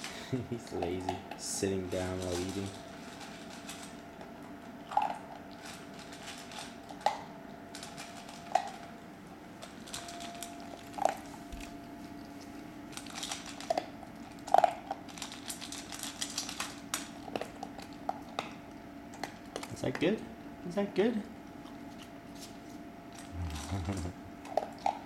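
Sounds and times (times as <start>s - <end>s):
dog crunching kibble: 0.6s - 9.0s, 9.6s - 20.1s.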